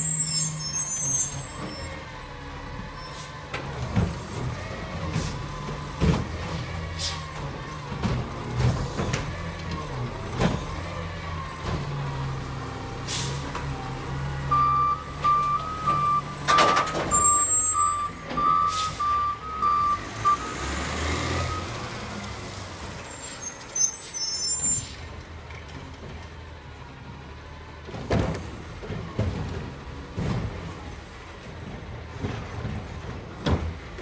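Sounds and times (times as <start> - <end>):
high squeals: 0.0 - 3.3, 14.6 - 20.8, 22.6 - 25.1
air-brake hisses: 13.0 - 13.4
reversing beeper: 14.4 - 21.8.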